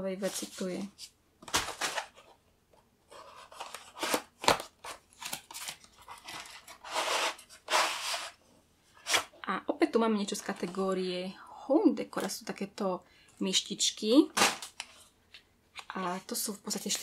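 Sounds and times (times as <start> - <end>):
cardboard box rustling and scraping: 6.0 - 8.4.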